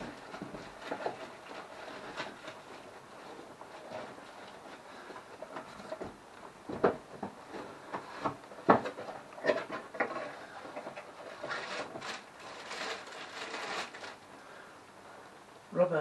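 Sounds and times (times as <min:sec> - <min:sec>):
items knocking and clattering: 0:00.0 - 0:14.2
paper and cardboard rustling: 0:00.0 - 0:14.4.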